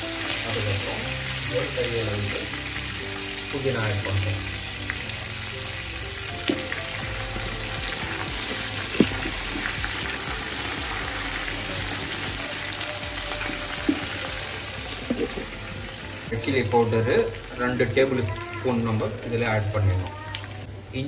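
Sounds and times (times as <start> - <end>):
food sizzling in hot oil: 0.0 - 21.0
wooden spatula knocking pot: 7.9 - 10.0.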